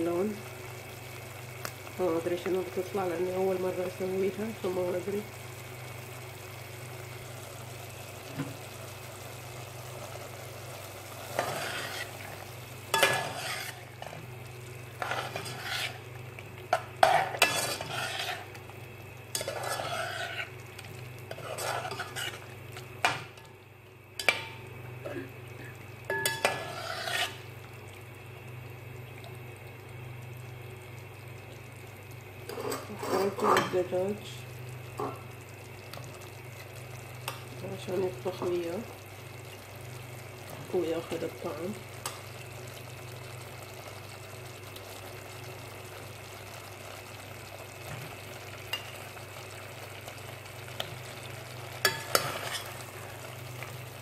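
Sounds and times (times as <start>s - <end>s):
vegetables sizzling: 0.0s - 54.0s
spoon scraping frying pan: 11.3s - 14.2s, 15.0s - 16.1s, 16.7s - 18.6s, 19.3s - 23.4s, 26.1s - 27.4s, 32.5s - 33.8s, 51.8s - 53.1s.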